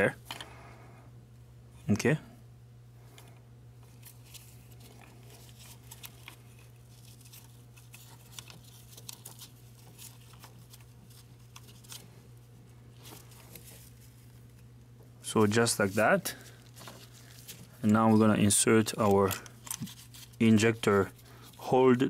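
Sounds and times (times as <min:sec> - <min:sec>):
steady low hum: 0:00.0 - 0:22.0
clicks and rustling of gloved hands: 0:03.8 - 0:12.2, 0:13.0 - 0:21.7.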